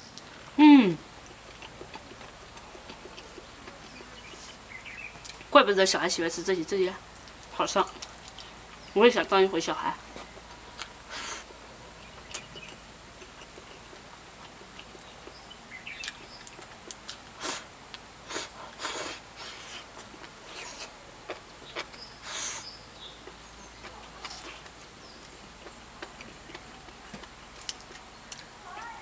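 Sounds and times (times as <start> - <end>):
person slurping and chewing food: 1.3 - 4.6, 18.3 - 22.7.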